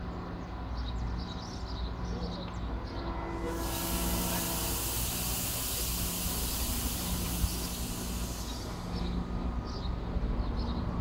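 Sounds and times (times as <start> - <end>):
low hum from standing train: 0.0 - 11.0
air brakes hissing: 3.4 - 9.4.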